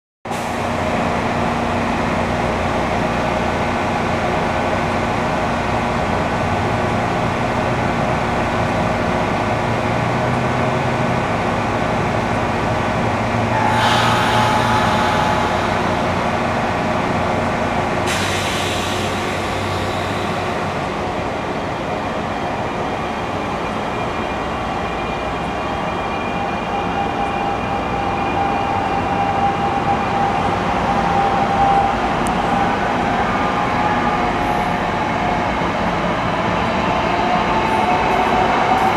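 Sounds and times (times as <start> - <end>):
electric train passing: 11.4 - 24.5
steady whine: 13.5 - 18.1.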